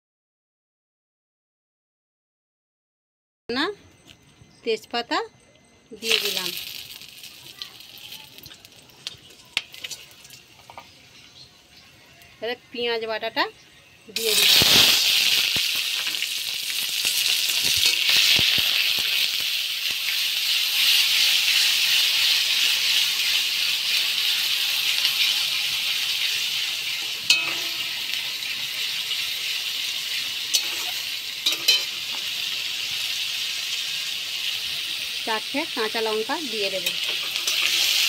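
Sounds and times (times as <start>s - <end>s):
onion paste sizzling in oil: 6.0s - 38.0s
sharp clinks: 27.3s - 28.2s.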